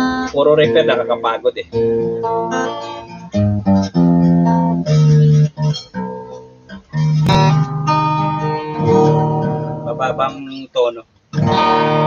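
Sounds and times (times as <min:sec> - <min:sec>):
acoustic guitar strumming: 0:00.0 - 0:12.0
percussive hit on guitar strings: 0:02.0 - 0:10.3.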